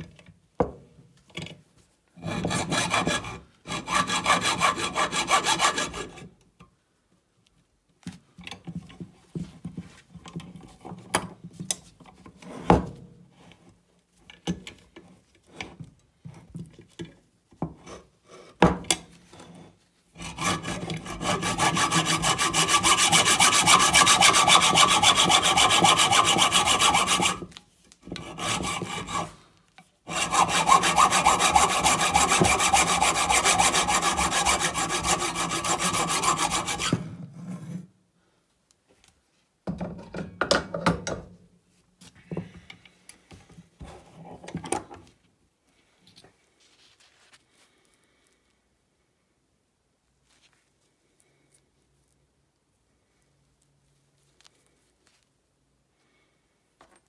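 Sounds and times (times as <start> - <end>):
hacksaw sawing metal: 2.2 - 6.2, 20.2 - 27.5, 28.1 - 29.4, 30.1 - 37.2.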